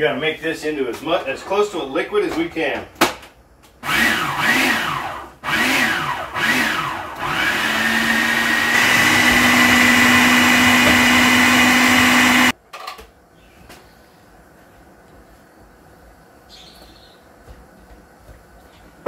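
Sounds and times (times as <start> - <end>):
food processor chopping: 3.9 - 12.5.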